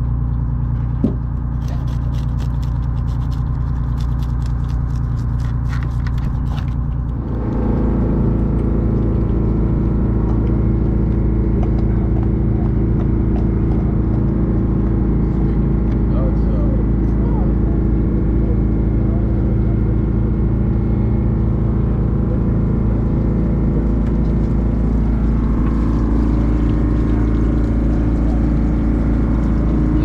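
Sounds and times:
boat engine running: 0.0s - 30.0s
fish scaler scraping scales: 1.4s - 7.2s.

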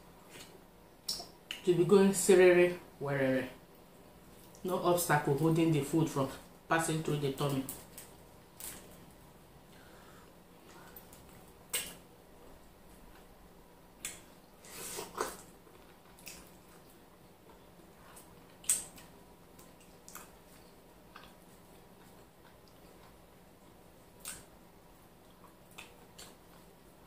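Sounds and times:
wet eating smacks and squelches: 14.0s - 23.2s, 24.1s - 27.0s.

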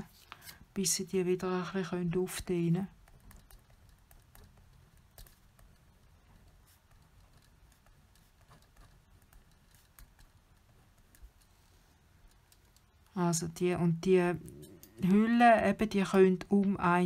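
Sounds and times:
pen writing on paper: 6.4s - 11.6s.

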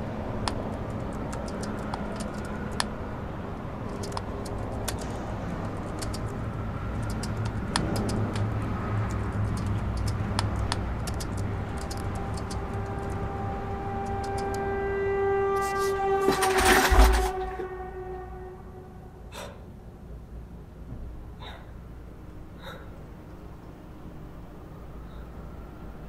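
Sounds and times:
horn-like drone: 0.0s - 20.7s
keyboard typing clicks: 7.0s - 8.5s, 9.1s - 13.2s.

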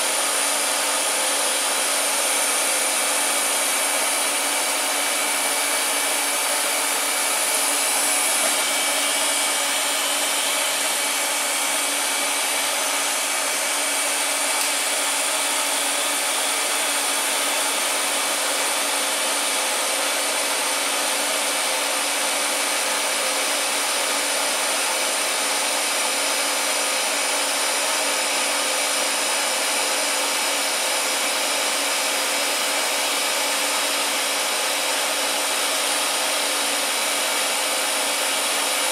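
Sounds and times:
blower-like hiss: 0.0s - 16.5s.

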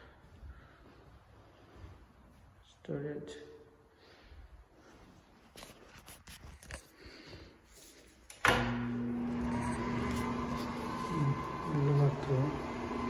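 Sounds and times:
exhaust fan humming: 8.4s - 13.0s.

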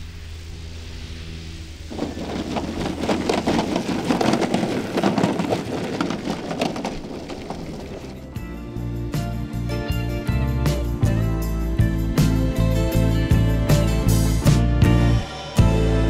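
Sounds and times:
low steady hum: 0.0s - 8.4s
landing gear rattling over grass: 1.9s - 8.4s
music: 8.1s - 16.0s.

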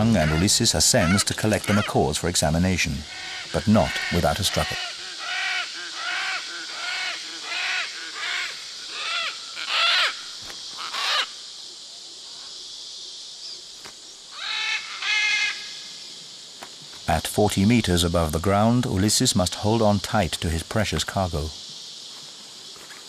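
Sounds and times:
macaws squawking: 0.0s - 11.4s, 14.3s - 15.7s.

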